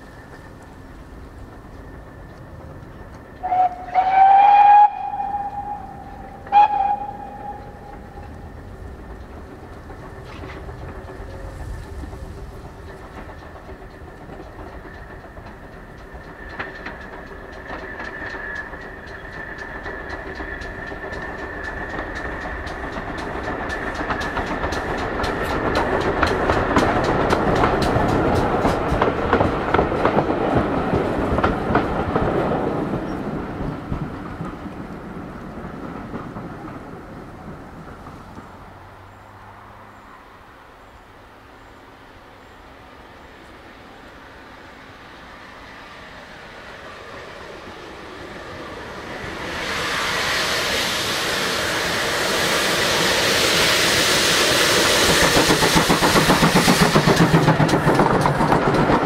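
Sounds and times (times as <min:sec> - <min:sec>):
wheels clacking over rail joints: 0:00.0 - 0:41.8, 0:46.0 - 0:59.0
steam locomotive passing: 0:00.0 - 0:59.0.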